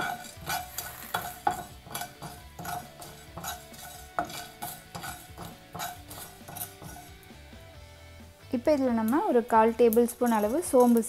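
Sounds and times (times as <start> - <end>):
wooden spatula scraping pan: 0.0 - 7.3.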